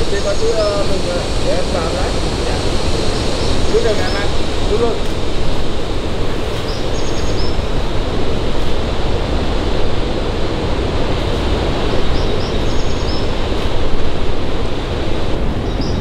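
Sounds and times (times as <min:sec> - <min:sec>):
rushing falling water: 0:00.0 - 0:16.0
high chirping call: 0:06.6 - 0:07.7, 0:12.0 - 0:13.5.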